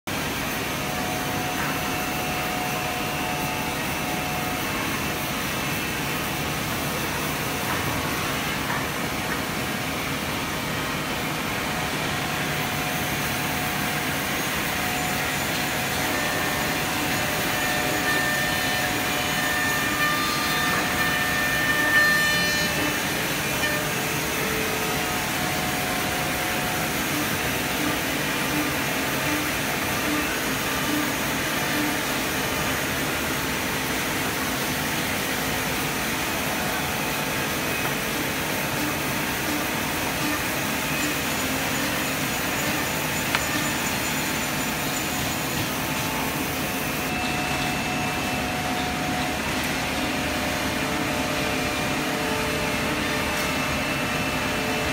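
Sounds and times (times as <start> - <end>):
high machine whine: 0.1 - 54.9
machine cutting wood: 11.5 - 54.9.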